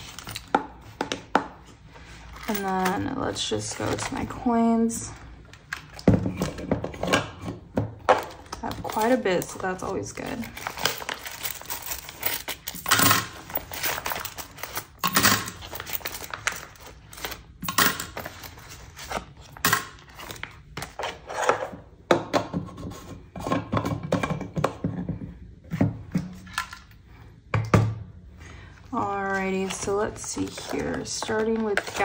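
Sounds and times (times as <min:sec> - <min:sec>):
plastic and paper crinkling: 0:00.0 - 0:00.6, 0:01.9 - 0:06.0, 0:08.2 - 0:17.6, 0:29.0 - 0:32.0.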